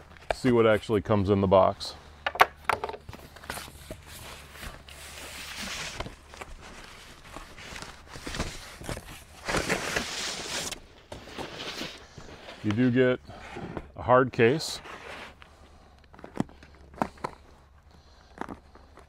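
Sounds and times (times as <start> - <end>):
cardboard flaps scraping and tearing: 3.3 - 12.6.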